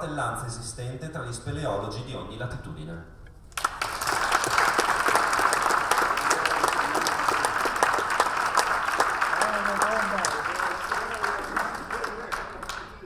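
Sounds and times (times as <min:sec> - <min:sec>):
crowd applauding: 0:03.5 - 0:13.0.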